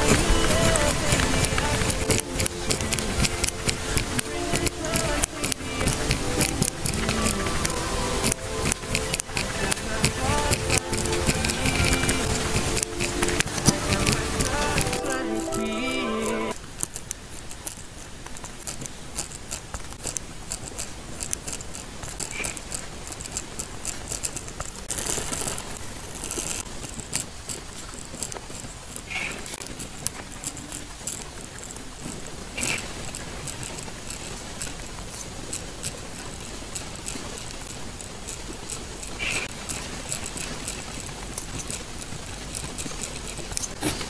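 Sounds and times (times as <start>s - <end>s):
music snippet: 0.0s - 16.6s
pen writing on paper: 0.0s - 44.0s.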